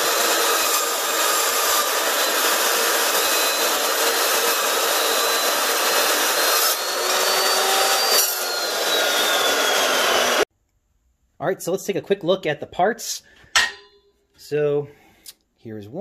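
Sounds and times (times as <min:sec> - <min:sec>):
chop saw cutting steel tube: 0:00.0 - 0:10.4.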